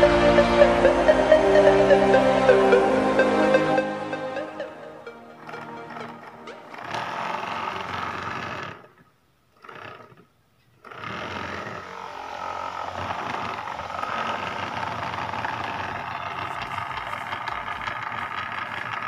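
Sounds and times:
small motor whirring propeller: 0:10.8 - 0:19.0.

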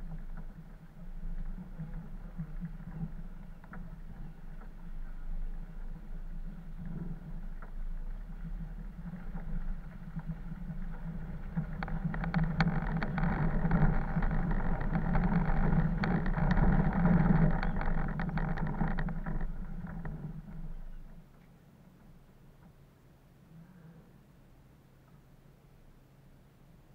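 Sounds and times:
vehicle engine drone: 0:00.0 - 0:24.2
knocks and rattles: 0:09.2 - 0:21.4.

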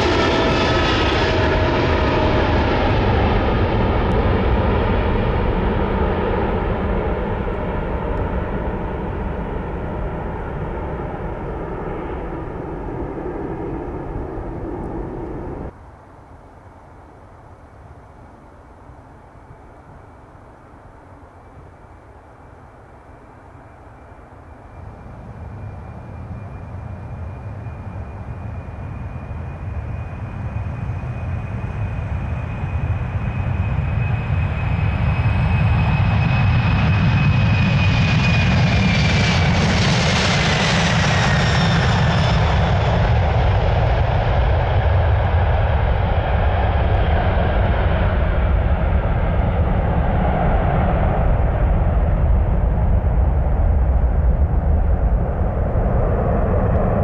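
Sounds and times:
heavy low rumble: 0:00.0 - 0:15.7, 0:38.4 - 0:57.0
high engine whine: 0:00.0 - 0:15.8, 0:22.6 - 0:57.0
jet engines at takeoff thrust: 0:00.0 - 0:16.3, 0:17.5 - 0:57.0.

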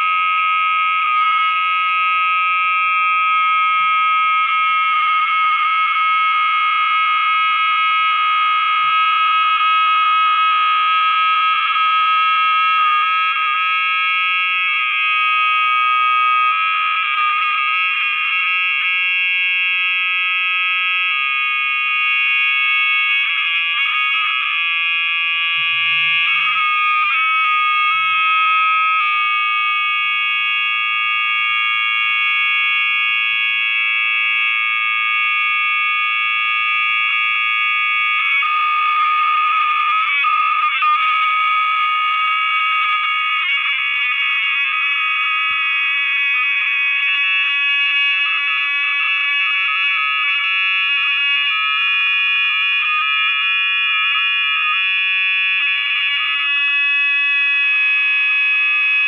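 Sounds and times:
high-pitched electronic tones: 0:23.6 - 0:29.3.

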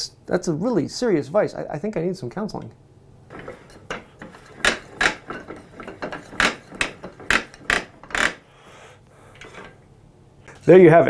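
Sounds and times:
vise clicking and clunking: 0:03.3 - 0:08.4, 0:09.3 - 0:09.9.

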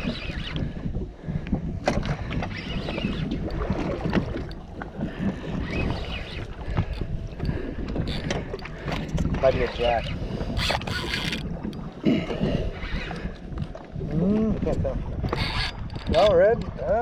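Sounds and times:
fishing reel clicking: 0:00.0 - 0:00.7, 0:05.5 - 0:08.4, 0:09.0 - 0:11.5, 0:15.2 - 0:16.4
wind rumbling on microphone: 0:00.0 - 0:17.0.

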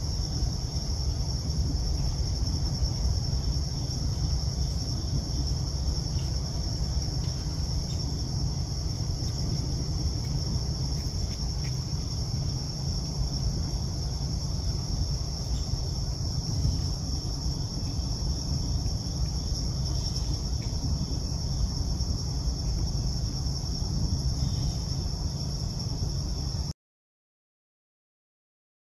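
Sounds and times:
low rumble: 0:00.0 - 0:26.7
insect chorus high drone: 0:00.0 - 0:26.8.

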